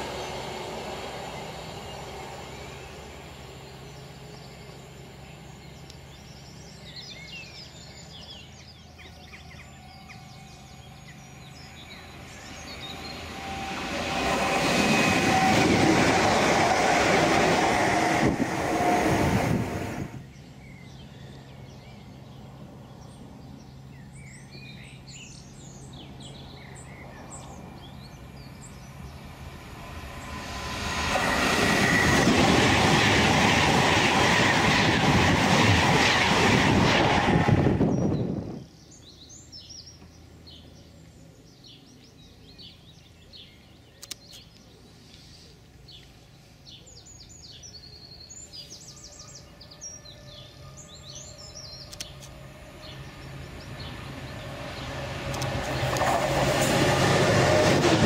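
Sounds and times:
electric trains passing at speed: 0.0 - 44.2, 45.6 - 58.0
wheels clickety-clack on rail: 30.4 - 37.8, 53.6 - 58.0
birds chirping: 37.8 - 57.7.

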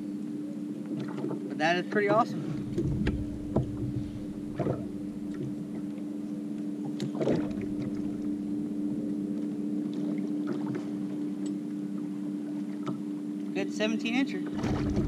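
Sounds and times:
steady low hum: 0.0 - 15.0
gear knocking and clunking: 2.7 - 4.8.

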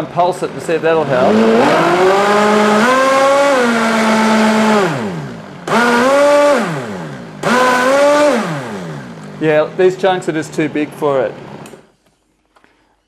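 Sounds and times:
blender motor whining: 1.1 - 9.4.

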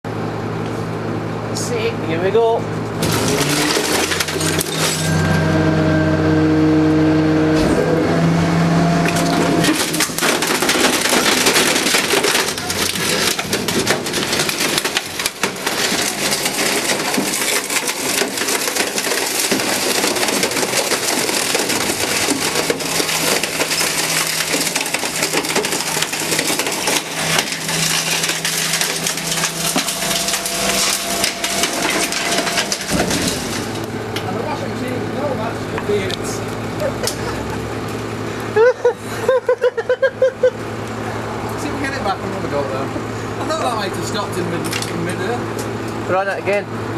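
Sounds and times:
garbage truck machine hum: 0.1 - 46.9
washing machine being crushed: 2.9 - 5.9, 7.5 - 40.0.

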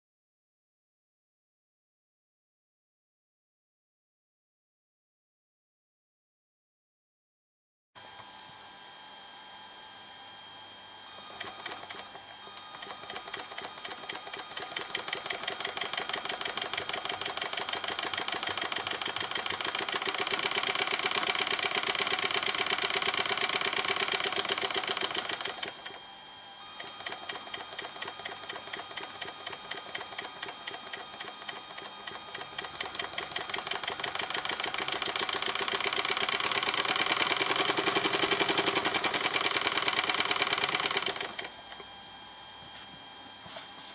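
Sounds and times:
model engine mechanical clatter: 12.6 - 26.0, 26.8 - 41.5.

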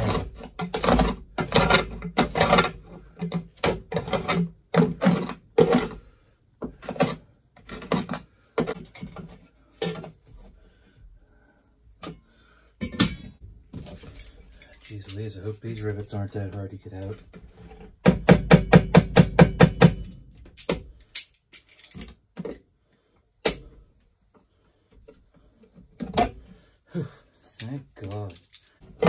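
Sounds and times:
hand scraping dirt off metal: 0.0 - 10.8.

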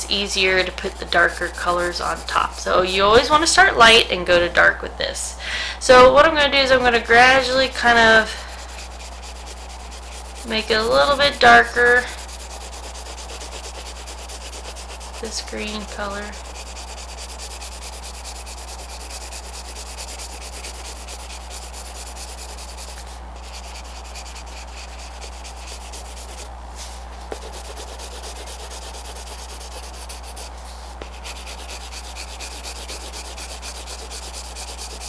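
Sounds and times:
low electrical hum: 0.0 - 35.0
pencil scratching on paper: 0.1 - 3.4, 6.7 - 35.0.

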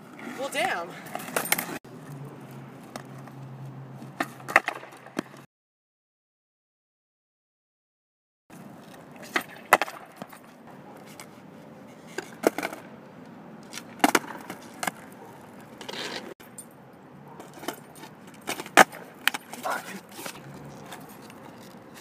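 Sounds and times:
skateboard clacks on concrete: 4.1 - 5.4, 8.8 - 11.3, 11.9 - 13.0, 13.6 - 16.3, 17.3 - 22.0.

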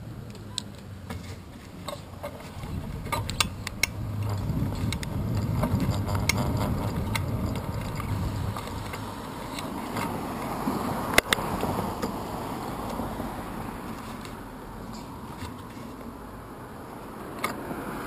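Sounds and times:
wind: 0.0 - 18.0
bike clicks and rattles: 0.3 - 12.2
bicycle tyres rumbling on asphalt: 1.1 - 18.0.

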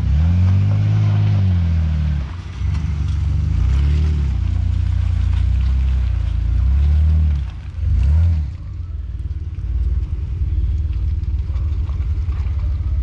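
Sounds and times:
engine revving under load: 0.0 - 4.6, 5.6 - 8.8.

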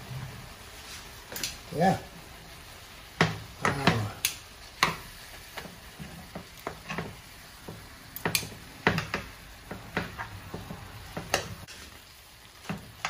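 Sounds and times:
meat sizzling in oil: 0.0 - 13.0
metal tongs clicking in a pan: 1.3 - 1.6, 4.2 - 5.0, 8.1 - 9.3.

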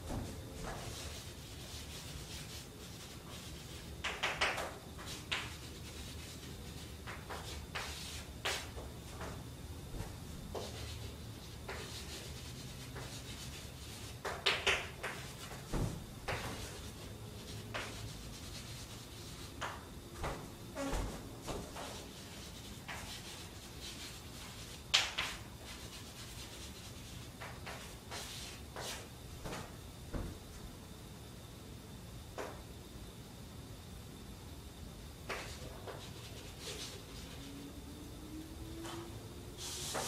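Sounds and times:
room hum: 0.0 - 40.0
chalk tapping and scratching: 0.1 - 9.4, 10.0 - 29.7, 35.3 - 37.6, 39.6 - 40.0.

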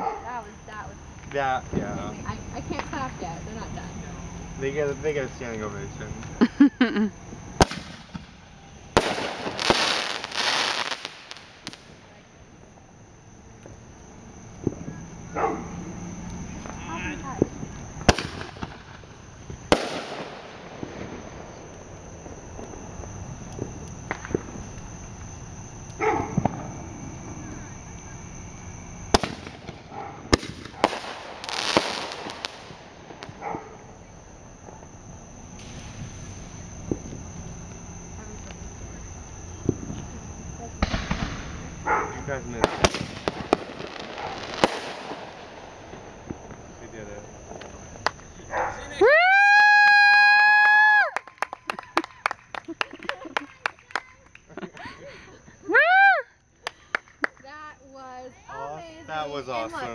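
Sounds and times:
fireworks crackling: 0.2 - 59.9
firework bangs: 4.6 - 49.0.

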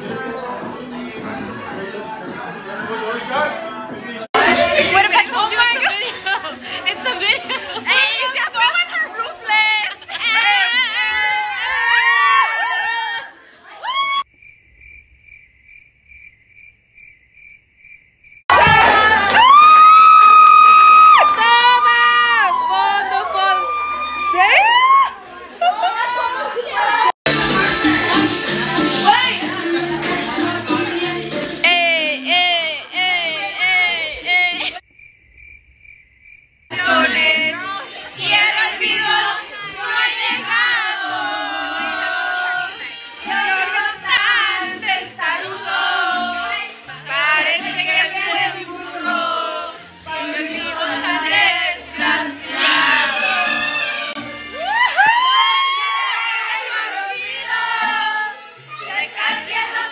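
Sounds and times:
loud party music: 0.0 - 7.8, 18.5 - 25.2, 27.2 - 34.8, 36.7 - 59.9
women shrieking and laughing: 9.8 - 14.3, 19.4 - 27.1, 32.2 - 34.8, 54.6 - 56.1
people cheering: 10.2 - 14.3, 18.5 - 28.0, 29.8 - 34.8, 52.6 - 56.5
cricket chirping: 14.3 - 18.4, 34.8 - 36.8.

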